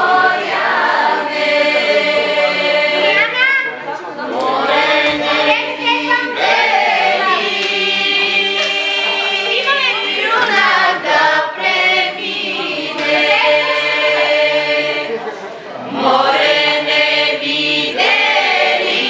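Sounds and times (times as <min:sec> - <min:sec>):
women singing folk song together: 0:00.0 - 0:03.4, 0:04.1 - 0:19.0.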